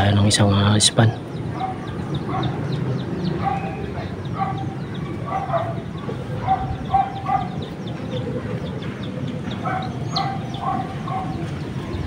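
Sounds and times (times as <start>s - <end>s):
small birds chirping: 0.0s - 12.0s
dog barking: 1.5s - 7.9s, 9.6s - 11.6s.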